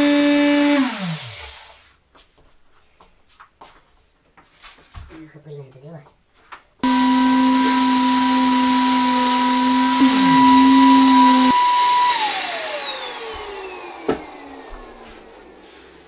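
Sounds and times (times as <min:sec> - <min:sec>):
power sander whining: 0:00.0 - 0:01.7, 0:06.8 - 0:16.0.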